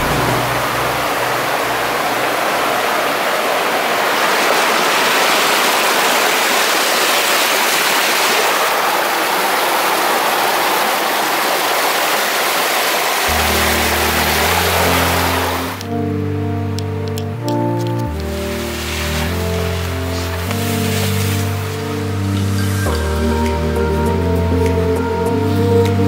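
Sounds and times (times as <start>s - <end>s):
rushing stream water: 0.0s - 24.9s.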